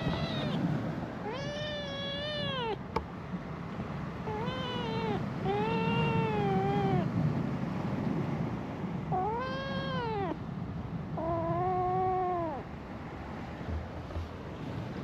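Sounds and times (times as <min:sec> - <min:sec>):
cat meowing: 0:00.0 - 0:02.8, 0:04.3 - 0:07.1, 0:09.1 - 0:10.4, 0:11.2 - 0:12.7.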